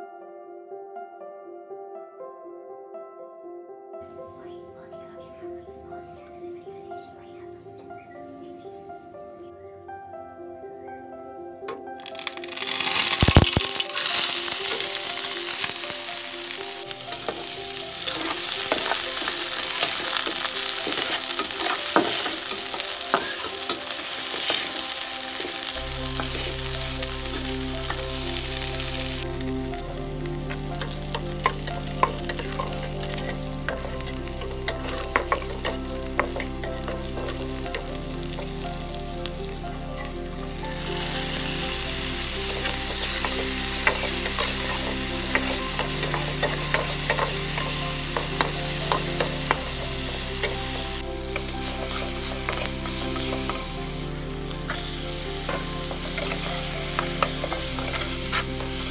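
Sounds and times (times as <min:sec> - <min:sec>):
onions sizzling in hot oil: 0:12.0 - 0:58.9
spatula scraping a pan: 0:17.1 - 0:25.2.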